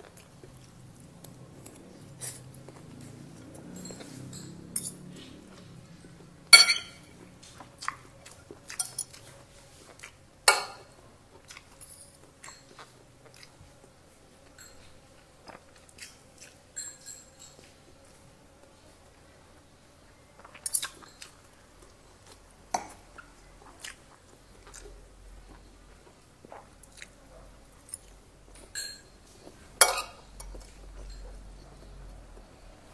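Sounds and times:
person chewing food: 0.0 - 6.5, 7.1 - 18.8, 20.4 - 32.8
cutlery clinking on a plate: 6.6 - 7.1, 16.8 - 17.7, 28.6 - 29.2, 29.8 - 31.4.

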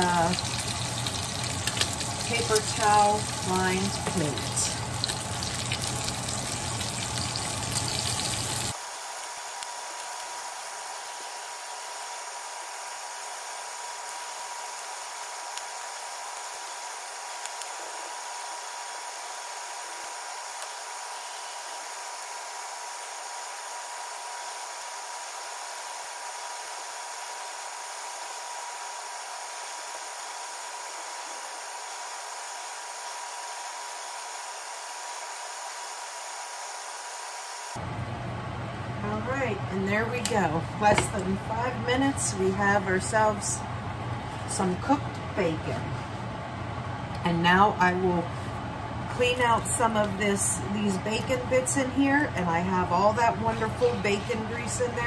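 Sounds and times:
tongs turning bacon: 0.0 - 8.8, 52.9 - 55.0
bacon sizzling in a skillet: 0.0 - 37.7.

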